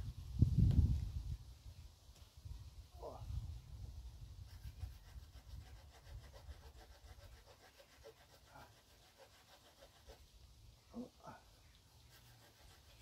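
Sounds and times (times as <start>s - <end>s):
small saw rasping on wood: 4.5s - 10.2s, 12.0s - 13.0s.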